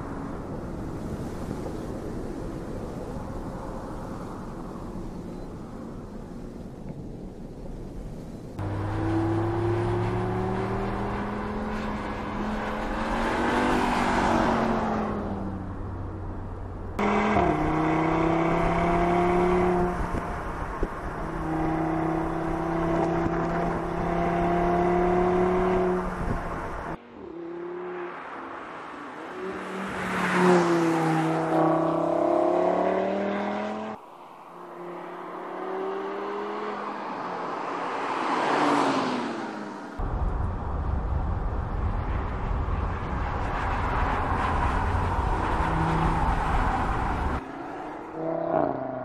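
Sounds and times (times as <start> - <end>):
car engine accelerating hard: 8.6 - 15.4, 17.0 - 27.0
car passing by: 8.6 - 15.8, 17.0 - 40.0, 41.8 - 49.0.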